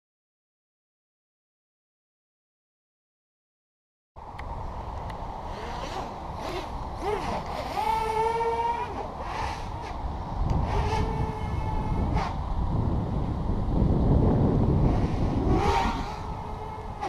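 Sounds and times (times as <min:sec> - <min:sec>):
wind rumble on microphone: 0:04.2 - 0:17.0
quadcopter motors whining: 0:05.0 - 0:17.0.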